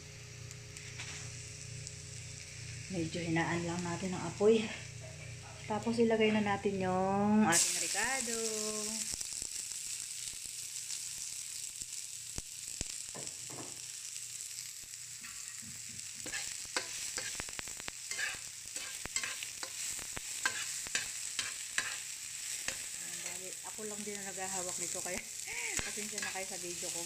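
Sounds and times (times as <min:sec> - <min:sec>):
onion sizzling in frying pan: 0:00.0 - 0:27.0
metal spatula scraping pan: 0:16.2 - 0:17.4, 0:18.1 - 0:19.8, 0:20.4 - 0:23.4, 0:25.8 - 0:26.5.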